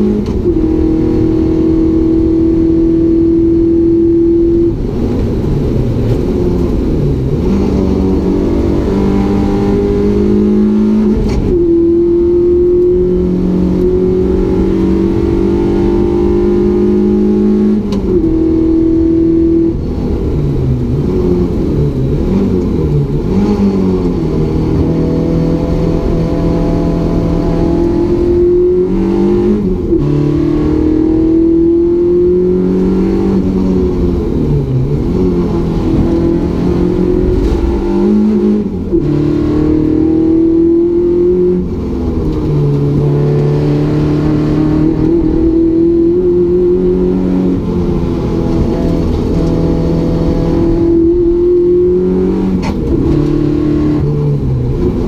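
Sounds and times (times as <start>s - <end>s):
car engine accelerating: 0.0s - 55.0s
road and wind noise: 0.0s - 55.0s.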